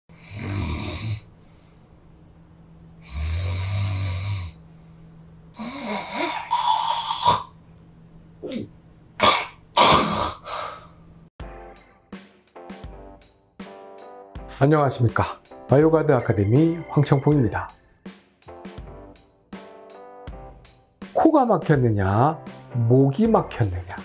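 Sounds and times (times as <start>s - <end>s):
man snoring: 0.1s - 1.3s, 3.0s - 4.6s, 5.6s - 7.6s.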